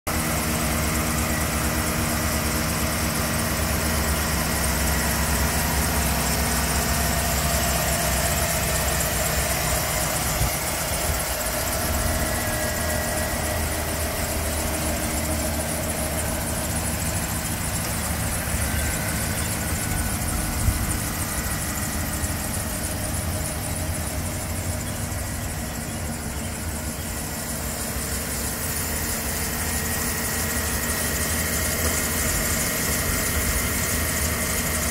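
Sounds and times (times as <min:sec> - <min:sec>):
engine idling: 0:00.1 - 0:34.9.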